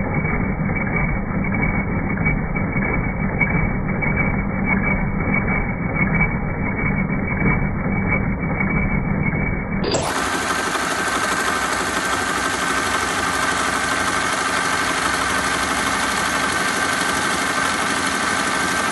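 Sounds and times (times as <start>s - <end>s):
embroidery machine stitching: 9.9s - 18.9s.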